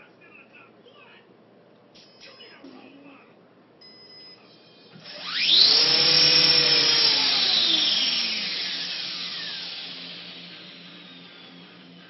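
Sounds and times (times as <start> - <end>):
electric motor whine: 4.7 - 12.0.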